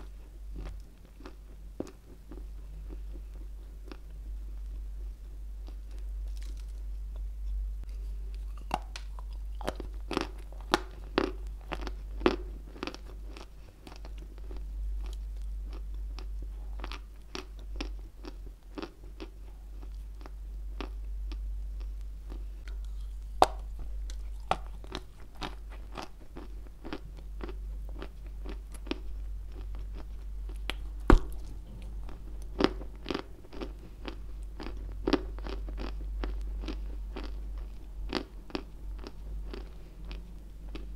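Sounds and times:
soft chewing: 0.0s - 40.9s
steady low hum: 0.0s - 40.9s
crunching clay: 30.6s - 32.0s.

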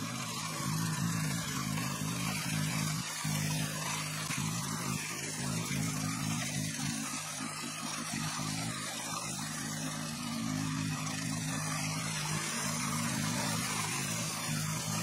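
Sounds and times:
power tiller engine running: 0.0s - 15.0s.

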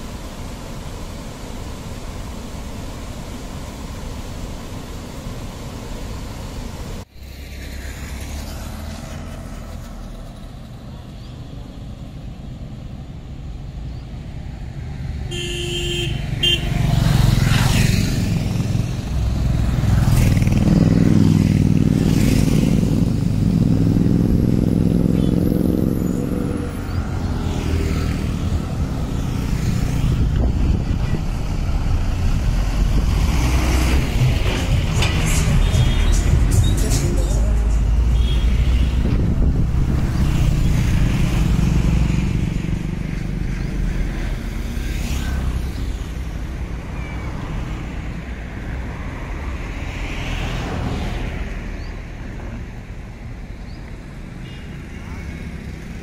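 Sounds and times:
motorbike and bus engines passing: 7.0s - 56.0s
horn toot: 15.3s - 16.8s, 34.6s - 37.4s, 38.1s - 39.2s.

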